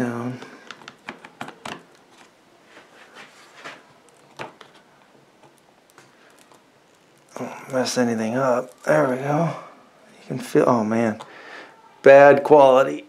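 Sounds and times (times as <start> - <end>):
hands rustling: 0.0 - 9.6.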